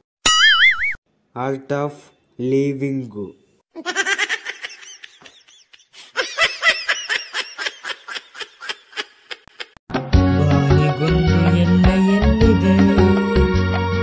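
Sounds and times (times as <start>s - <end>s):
high-pitched laughing: 3.7s - 9.8s
music: 9.9s - 14.0s.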